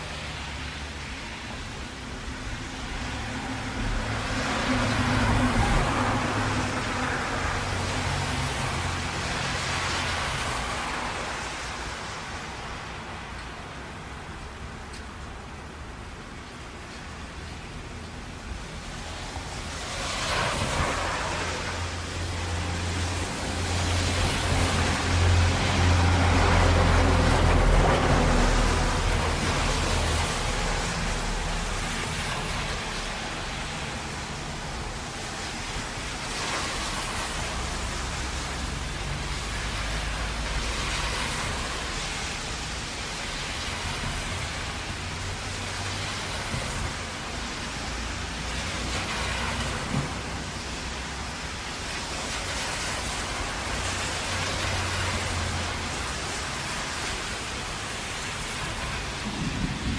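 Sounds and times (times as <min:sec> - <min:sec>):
heavy rain hissing: 0:00.0 - 0:59.9
low traffic rumbles: 0:00.0 - 0:59.9
tyre spray on wet road: 0:00.0 - 0:59.9.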